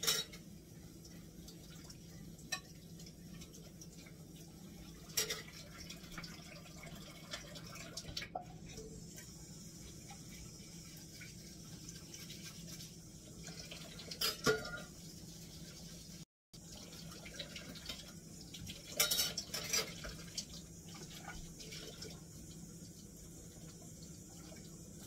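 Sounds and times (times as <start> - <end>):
dishes clinking: 0.0 - 0.5, 5.1 - 5.6, 14.1 - 14.9, 19.0 - 20.1
water splashing in sink: 1.0 - 15.9, 16.6 - 25.0.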